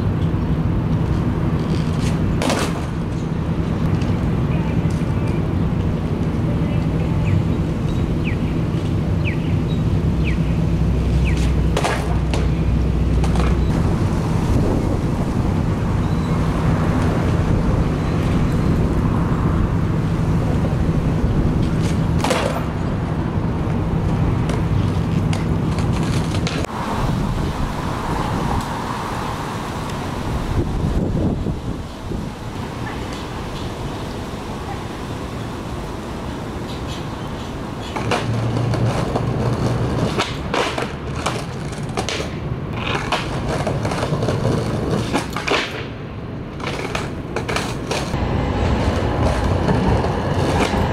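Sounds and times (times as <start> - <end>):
traffic: 0.0 - 50.9
wind: 0.0 - 50.9
skateboard clacks on concrete: 0.9 - 3.3, 11.2 - 13.8, 21.6 - 22.8, 24.1 - 26.7, 37.9 - 48.2.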